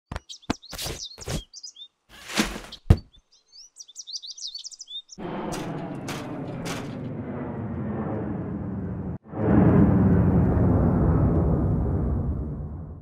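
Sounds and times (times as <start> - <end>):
birds chirping: 0.1 - 5.8
jet engine rumble: 5.2 - 13.0.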